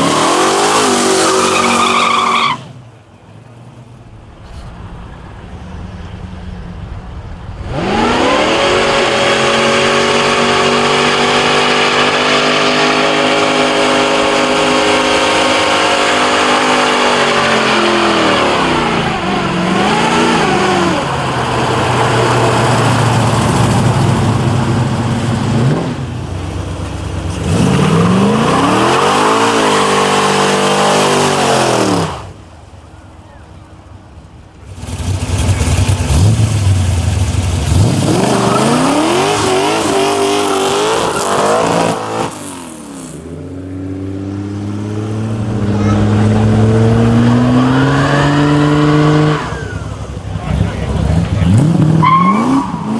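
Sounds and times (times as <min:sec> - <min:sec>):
car engine revving: 0:07.4 - 0:32.4, 0:34.6 - 0:52.9.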